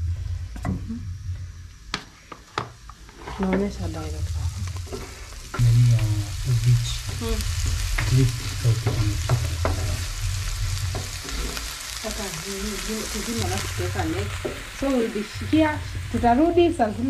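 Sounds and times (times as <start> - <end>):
onions sizzling in oil: 0.0 - 17.0
wooden spoon scraping a pan: 3.1 - 5.3, 7.2 - 17.0.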